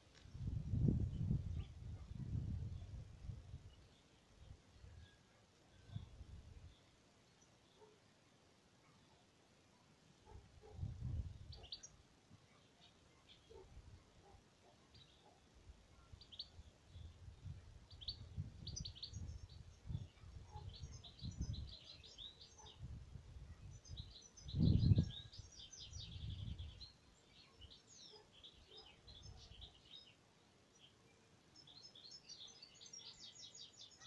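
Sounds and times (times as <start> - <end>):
songbirds chirping: 0.0 - 34.0
wind buffeting microphone: 0.3 - 3.8, 10.7 - 11.6, 17.0 - 21.8, 22.8 - 26.8.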